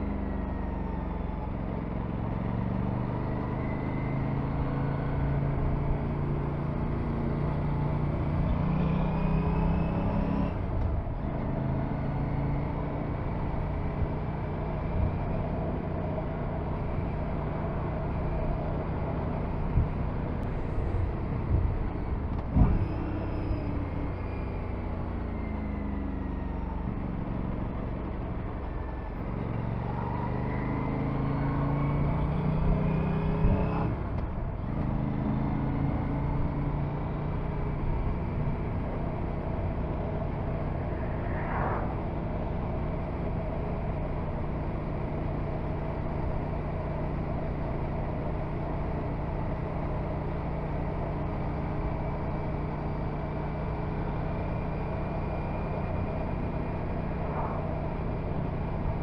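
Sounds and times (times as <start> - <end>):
wind rush: 40.0 - 43.4, 56.8 - 58.0.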